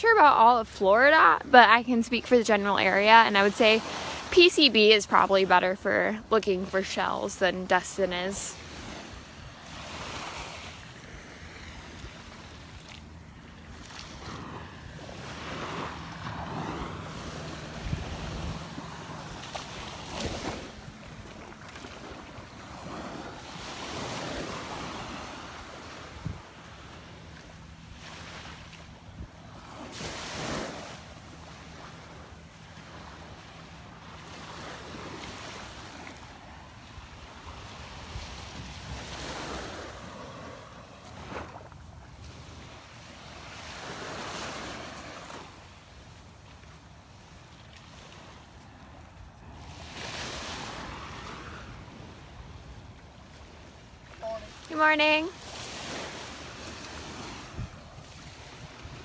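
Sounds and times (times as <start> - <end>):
small waves breaking on beach: 0.0 - 59.0
wind rumbling on microphone: 8.1 - 27.8, 28.9 - 45.3, 55.3 - 59.0.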